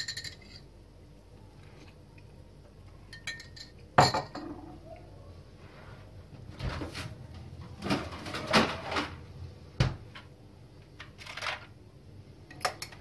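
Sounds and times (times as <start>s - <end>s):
kitchen knocks and rattles: 3.3s - 4.8s, 6.4s - 10.3s.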